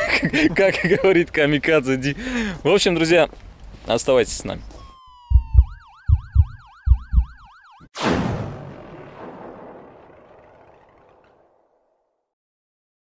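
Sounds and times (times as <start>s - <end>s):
police siren yelp: 4.8s - 7.9s
big crash hit: 8.0s - 11.8s.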